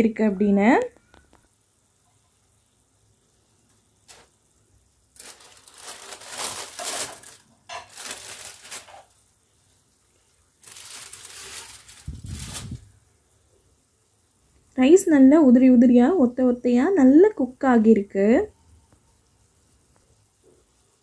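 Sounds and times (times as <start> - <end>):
aluminium foil crinkling: 4.0 - 4.4, 5.1 - 9.3, 10.6 - 13.0.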